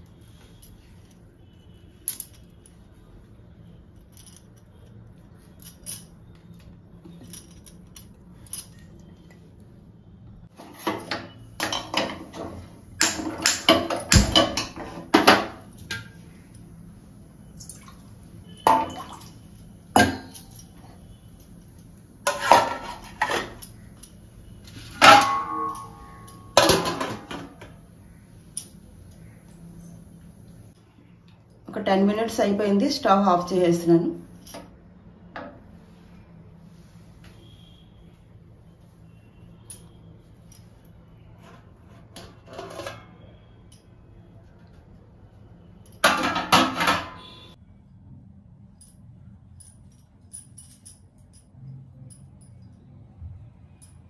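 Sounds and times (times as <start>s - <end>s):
steel cookware clanking: 10.6s - 16.2s, 20.0s - 20.9s, 22.2s - 23.9s, 24.8s - 27.7s.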